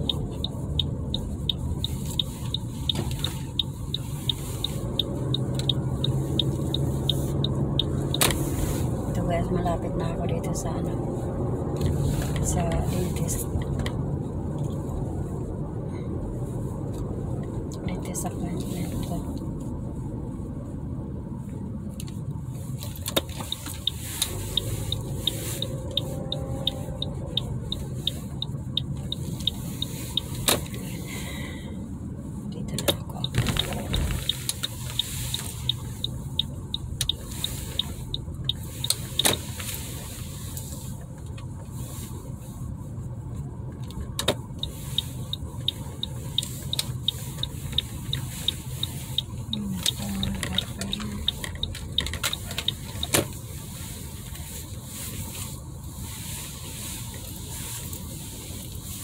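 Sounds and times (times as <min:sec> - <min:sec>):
car cabin road and engine noise: 0:00.0 - 0:59.0.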